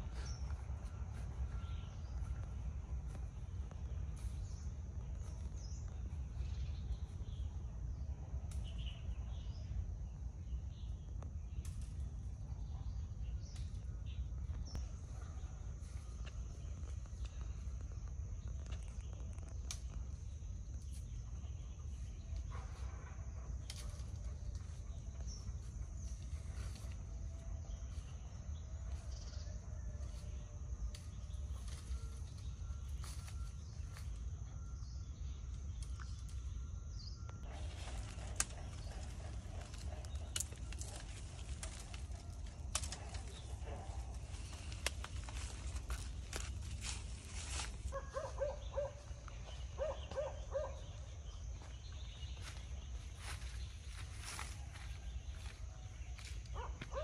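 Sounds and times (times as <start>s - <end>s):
faint high-pitched insect tone: 0.0s - 57.0s
bird chirps: 31.1s - 53.8s.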